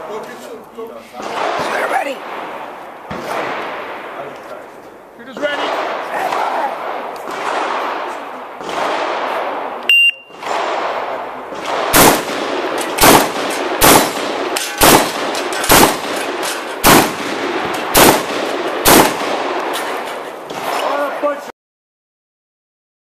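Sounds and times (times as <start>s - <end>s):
shotgun shots: 1.2s - 4.3s, 5.3s - 21.3s
shot timer beep: 9.9s - 10.4s.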